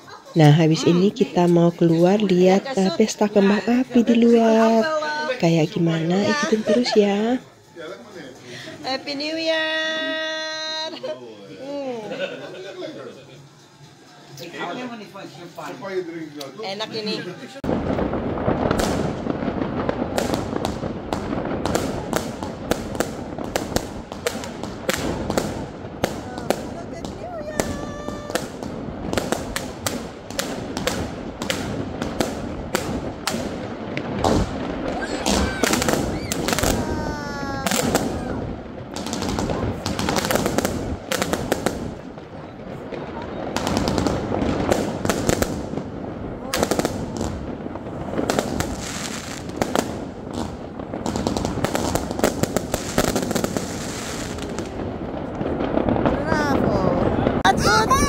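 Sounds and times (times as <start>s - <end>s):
fireworks bangs and cracks: 0.0s - 11.1s, 16.7s - 58.0s
background fireworks explosions: 0.0s - 58.0s
firework whistle: 34.8s - 38.5s.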